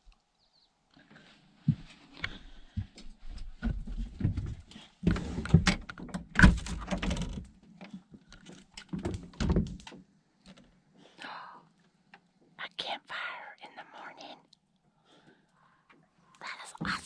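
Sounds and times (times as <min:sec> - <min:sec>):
door latch clicks and thumps: 0:05.6 - 0:07.4.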